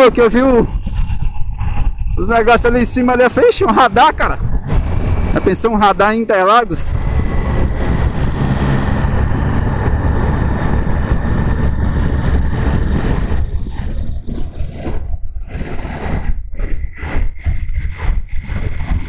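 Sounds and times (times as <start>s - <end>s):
wind rushing over microphone: 0.0s - 19.0s
motorcycle engine running: 6.9s - 19.0s.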